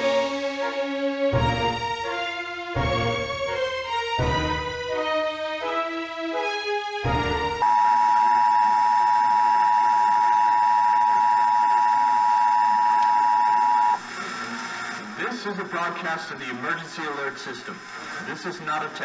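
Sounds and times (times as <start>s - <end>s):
orchestral music: 0.0s - 7.6s.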